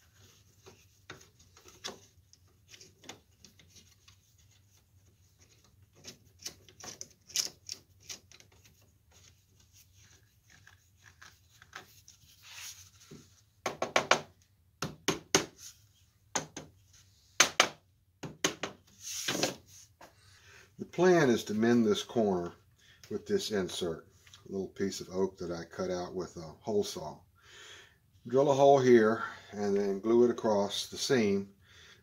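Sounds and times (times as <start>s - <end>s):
hand tool scraping and clicking: 5.4s - 8.7s.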